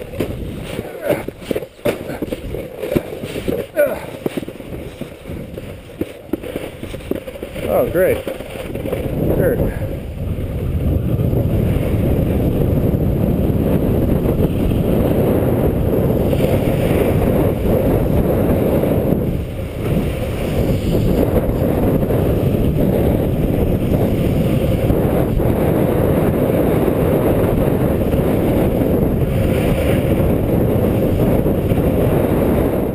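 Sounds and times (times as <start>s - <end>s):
sliding scrape over snow: 0.0s - 32.9s
wind buffeting microphone: 0.0s - 32.9s.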